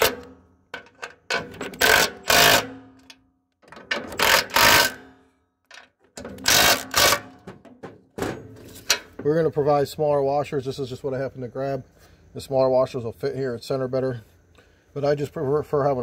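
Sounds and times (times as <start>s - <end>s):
impact wrench hammering: 0.0s - 3.2s, 3.9s - 5.2s, 6.2s - 8.4s.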